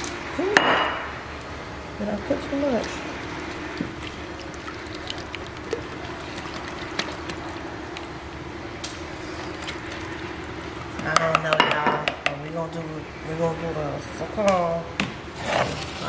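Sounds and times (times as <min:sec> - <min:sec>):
whisk swishing in liquid: 0:02.7 - 0:08.3, 0:09.1 - 0:11.0.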